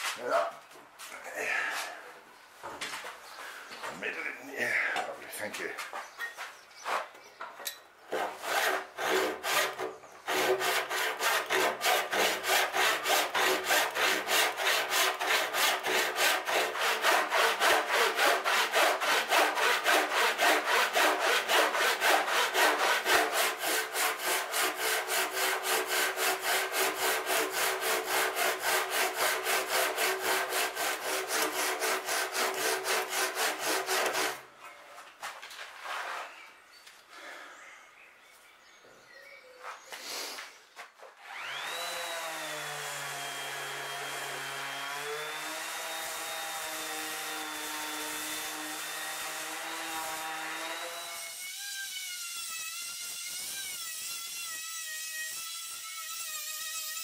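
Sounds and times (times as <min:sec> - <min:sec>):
hand saw cutting wood: 0:08.1 - 0:34.5, 0:41.2 - 0:57.0.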